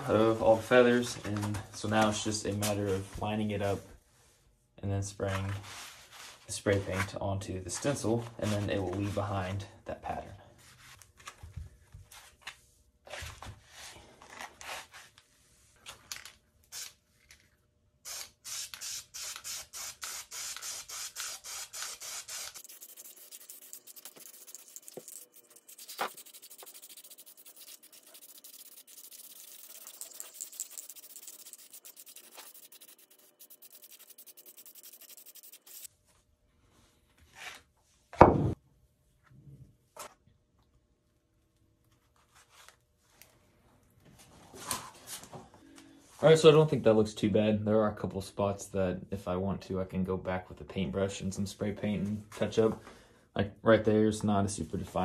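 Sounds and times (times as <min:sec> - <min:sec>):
spray paint can hissing: 0:18.1 - 0:35.9
cardboard stencil rustling: 0:18.2 - 0:35.9.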